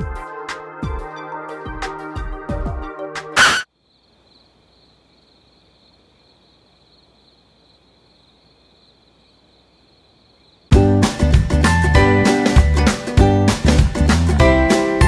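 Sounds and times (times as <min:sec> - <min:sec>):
faint insect chorus: 0:03.6 - 0:10.8.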